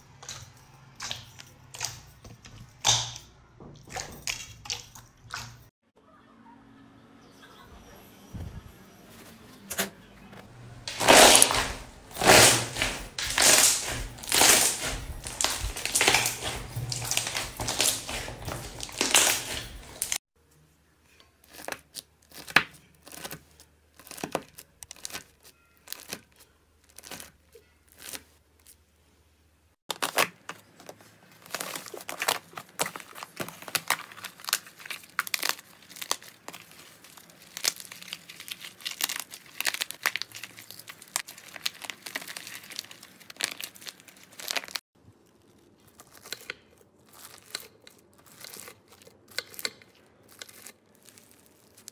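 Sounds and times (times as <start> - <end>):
wet slime squishing and popping: 0.0 - 5.7, 10.9 - 20.2, 29.9 - 51.9
slime crust crackling: 10.8 - 20.2, 21.4 - 28.8, 29.9 - 51.9.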